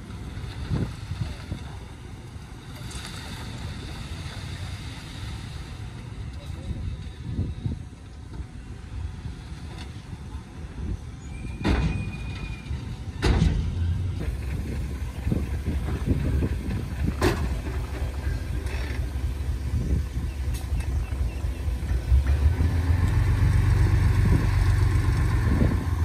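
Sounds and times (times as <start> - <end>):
diesel machinery rumbling: 0.0 - 26.0.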